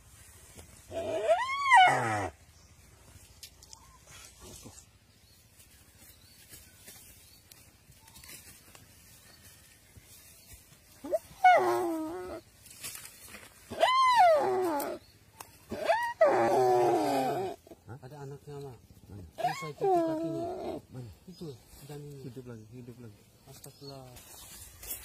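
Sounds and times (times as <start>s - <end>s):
deer bleating in distress: 0.9s - 2.4s.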